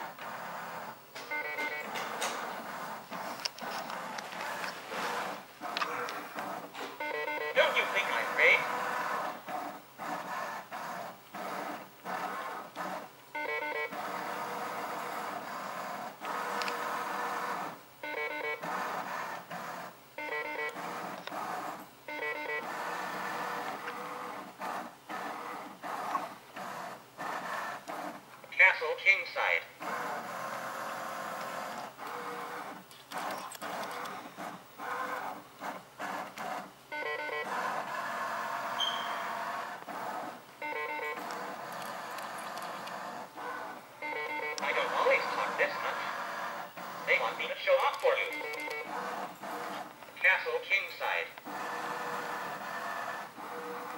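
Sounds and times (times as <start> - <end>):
motorised carriage whirring: 0.0 - 28.0, 29.8 - 53.9
electronic beeps: 1.3 - 2.0, 7.0 - 8.7, 13.4 - 14.0, 18.0 - 18.6, 20.2 - 20.8, 22.1 - 22.7, 38.8 - 39.2, 40.6 - 41.4, 44.0 - 46.0, 47.1 - 48.9
motorised carriage running: 44.1 - 49.8.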